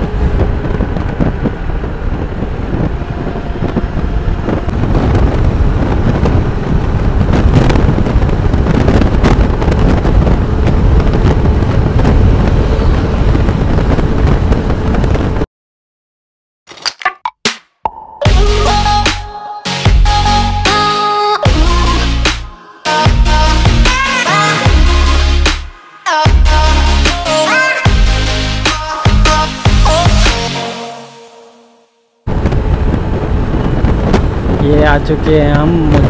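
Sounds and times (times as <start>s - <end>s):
road and engine rumble: 0.0s - 15.5s, 32.3s - 36.0s
wind rushing over microphone: 0.0s - 15.5s, 32.2s - 36.0s.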